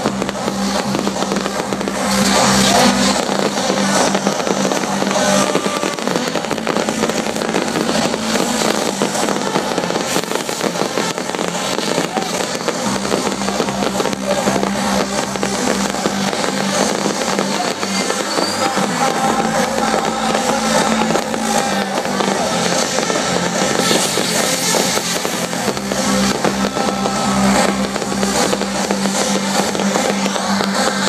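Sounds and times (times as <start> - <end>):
fireworks crackling and popping: 0.0 - 31.0
music from a stage: 0.0 - 31.0.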